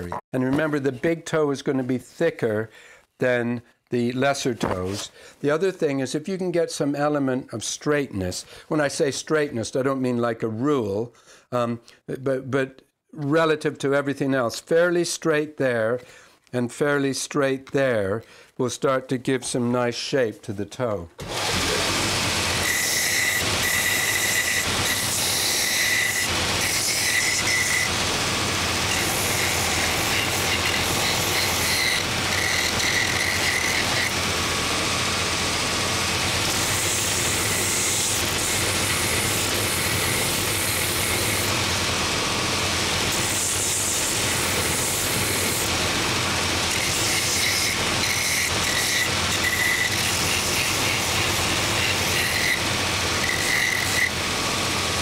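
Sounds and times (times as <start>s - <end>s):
belt sander grinding wood: 21.2s - 55.0s.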